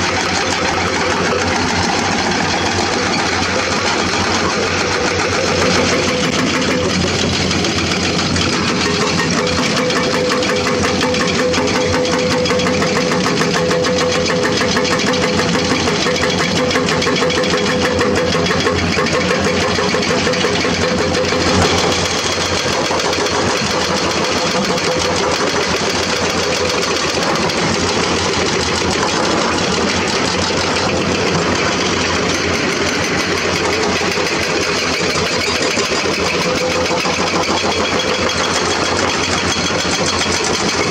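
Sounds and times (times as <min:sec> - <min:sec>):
excavator diesel engines running: 0:00.0 - 0:40.9
excavators digging rock: 0:00.0 - 0:40.9.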